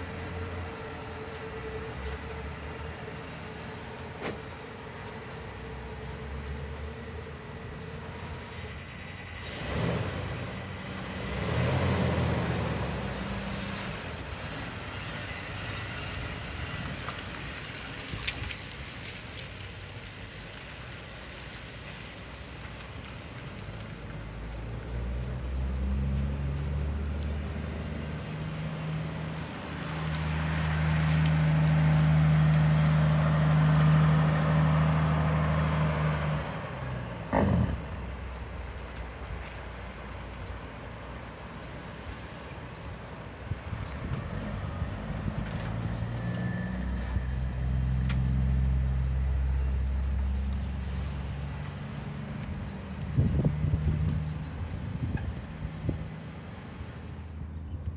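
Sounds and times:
truck engine driving: 0.0s - 57.9s.

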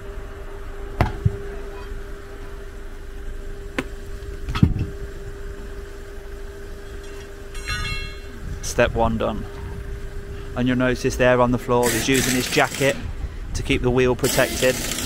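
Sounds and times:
steady mechanical hum: 0.0s - 15.0s
knocks and thuds of tyre and tools: 1.0s - 1.4s.

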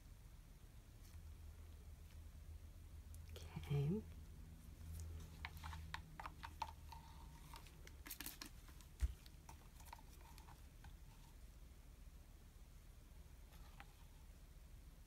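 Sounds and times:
faint clicks and handling noises: 4.8s - 11.4s.

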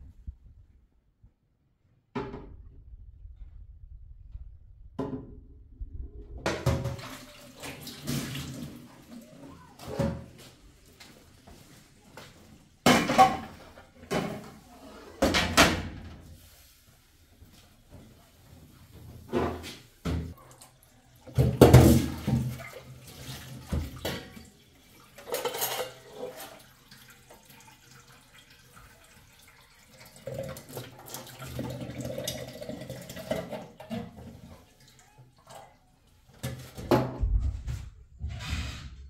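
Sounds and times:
tap water running into sink: 20.1s - 34.9s.

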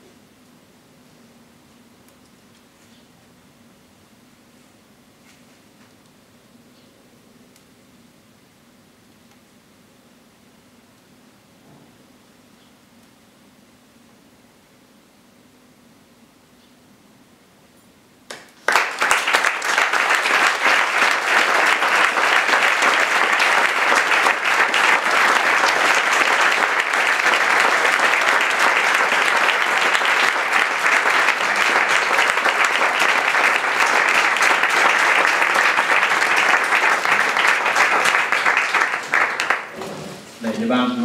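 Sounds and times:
crowd applauding: 18.3s - 39.9s.

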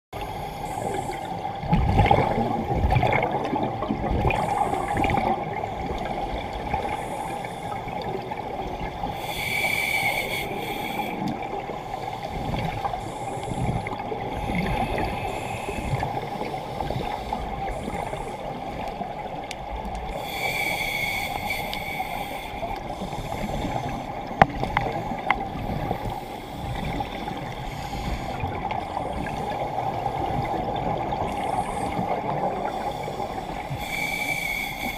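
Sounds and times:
underwater bubbles gurgling: 0.2s - 34.9s
regulator inhalation hiss: 9.1s - 11.3s, 20.2s - 24.0s, 32.7s - 34.9s.

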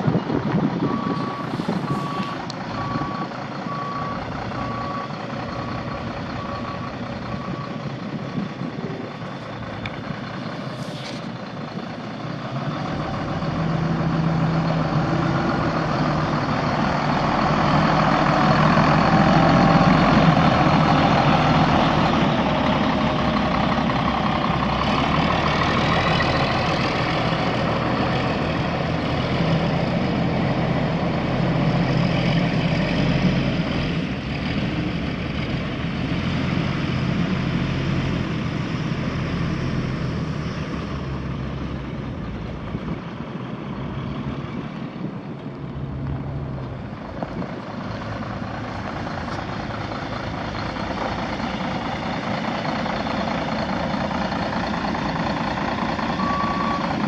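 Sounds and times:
diesel bus engine running: 0.0s - 57.0s.

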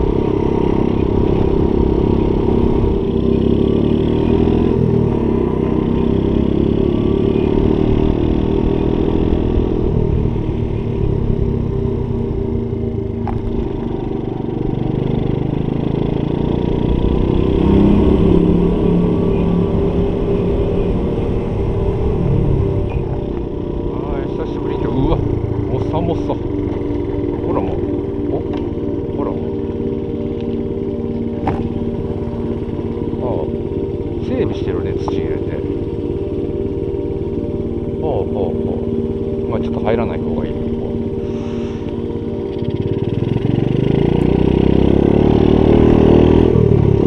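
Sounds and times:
small motorcycle engine running: 0.0s - 47.0s.

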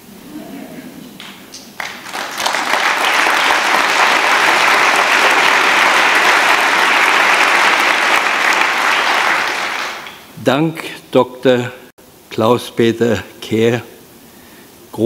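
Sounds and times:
large audience applauding: 1.7s - 10.3s.

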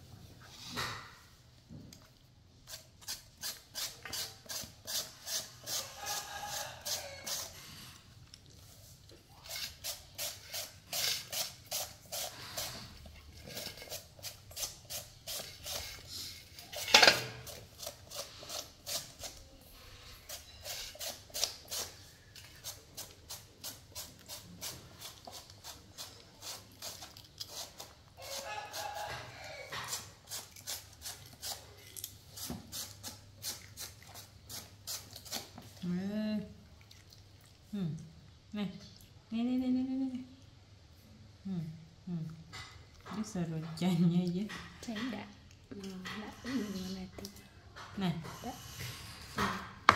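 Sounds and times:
shredder scraping vegetable: 9.4s - 19.5s.

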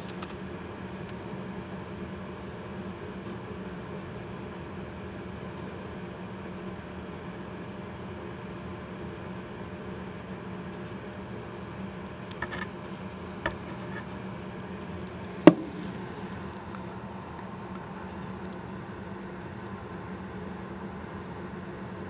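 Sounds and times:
steady low hum: 0.0s - 22.0s
sharp knock: 15.5s - 15.8s.

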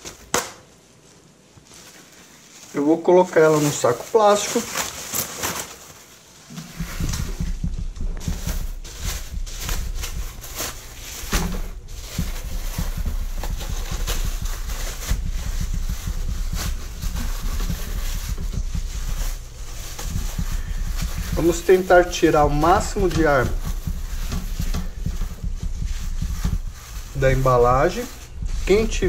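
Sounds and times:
plastic bag crinkling: 1.6s - 29.0s
steady low rumble: 6.7s - 29.0s.

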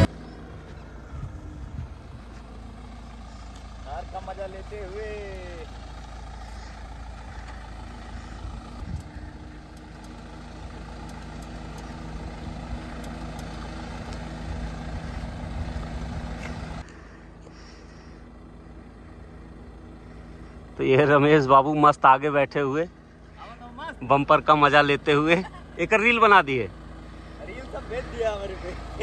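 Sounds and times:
car engine rumbling at low speed: 0.0s - 29.0s.

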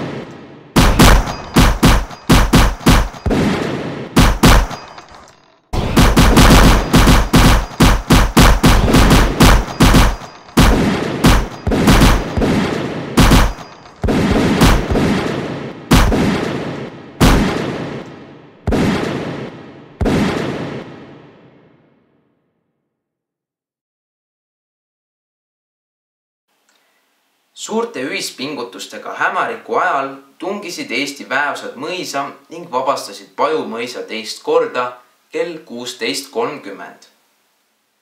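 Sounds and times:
gunshots with echo: 0.0s - 21.9s.

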